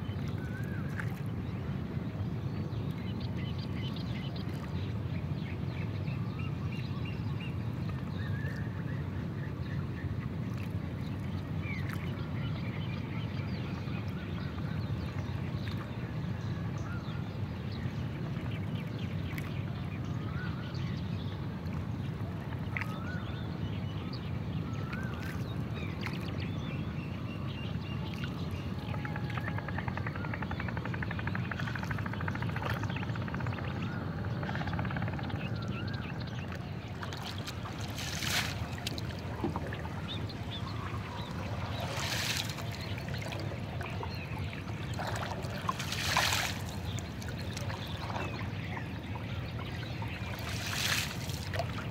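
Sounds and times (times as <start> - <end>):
wooden oar splashing in water: 0.2 - 1.3, 11.8 - 12.1, 22.7 - 23.0, 24.9 - 26.4, 31.2 - 33.1, 36.4 - 51.9
birds chirping: 27.7 - 51.9.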